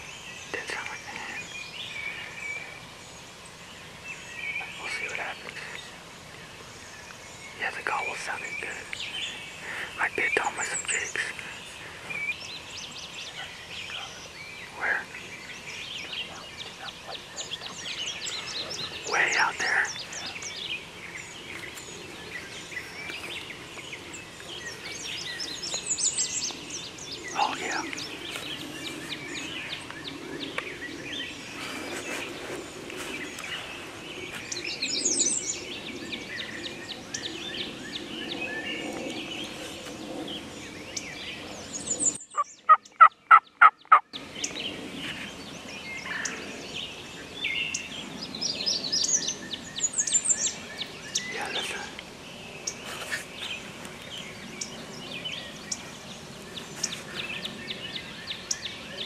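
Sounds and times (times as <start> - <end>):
songbirds chirping and singing: 0.0 - 59.0
turkey calls: 42.4 - 44.0.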